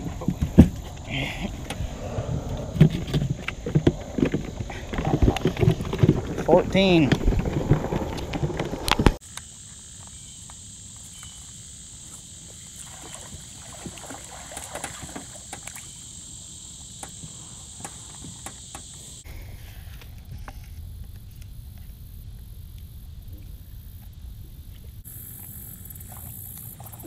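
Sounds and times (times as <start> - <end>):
low rumble: 0.0 - 9.2
insects droning: 0.0 - 27.0.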